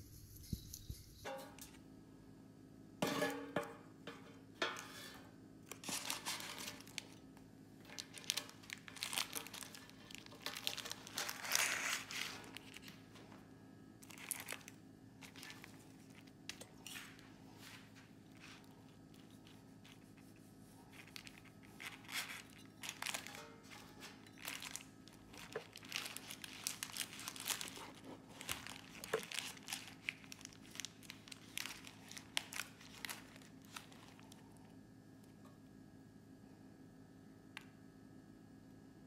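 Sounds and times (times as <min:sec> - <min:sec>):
parchment paper crinkling: 0:05.7 - 0:07.2, 0:07.8 - 0:13.3, 0:14.0 - 0:34.6.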